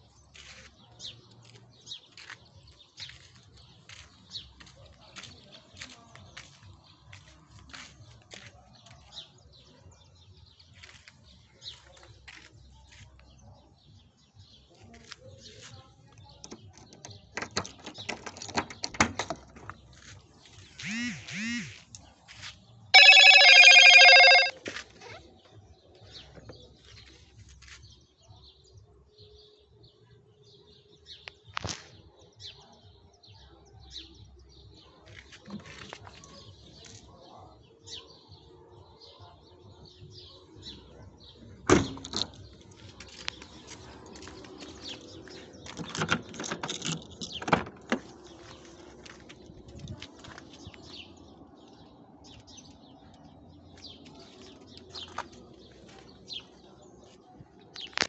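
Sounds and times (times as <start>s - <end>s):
loud high tone: 23.0s - 24.5s.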